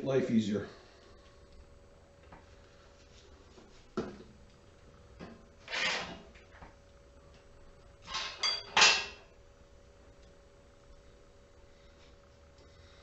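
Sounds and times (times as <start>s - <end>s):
faint steady hum: 0.0s - 13.0s
tool scraping on steel: 5.6s - 6.2s.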